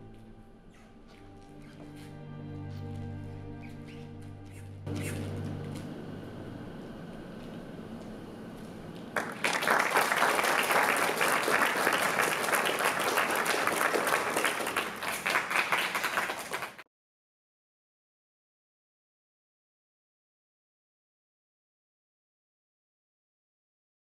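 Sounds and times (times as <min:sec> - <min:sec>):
audience applauding: 0:08.0 - 0:16.8.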